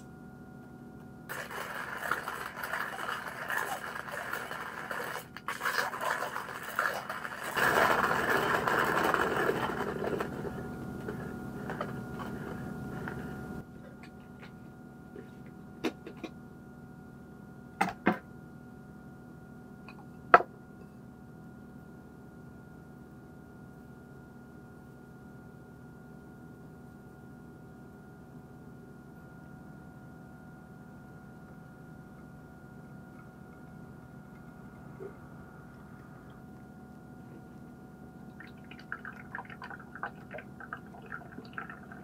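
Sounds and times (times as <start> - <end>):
manual coffee grinder grinding: 1.3 - 13.4, 38.4 - 42.0.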